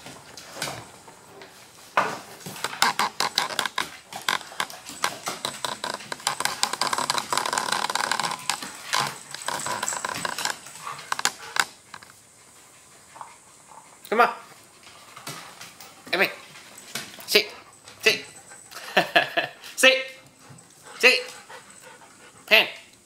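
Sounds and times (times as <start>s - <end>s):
dogs play growling: 0.0s - 19.5s
dog claws pattering on wood: 2.0s - 12.2s.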